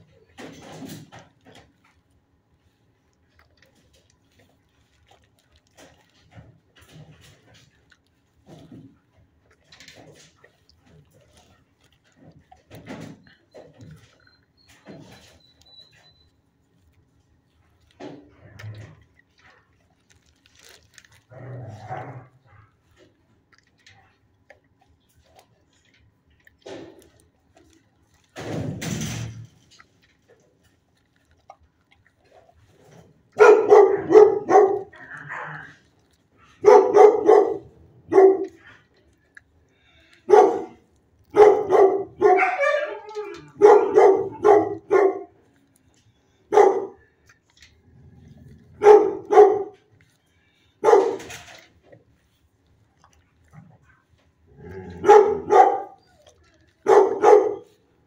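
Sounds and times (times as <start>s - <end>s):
dogs barking deeply: 33.2s - 39.4s, 40.2s - 45.6s, 46.3s - 47.4s, 48.1s - 50.0s, 50.7s - 51.7s, 53.0s - 57.8s.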